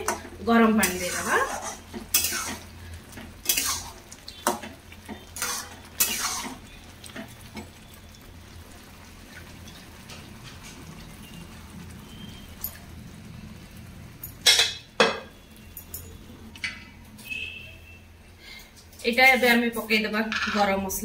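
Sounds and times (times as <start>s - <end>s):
ladle scraping metal pot: 0.8s - 2.7s, 3.4s - 4.0s, 5.4s - 6.6s.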